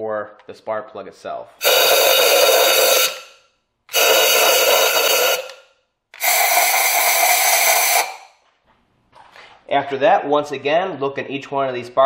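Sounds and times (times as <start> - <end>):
air blow gun hissing: 1.6 - 3.3, 3.9 - 5.6, 6.2 - 8.3.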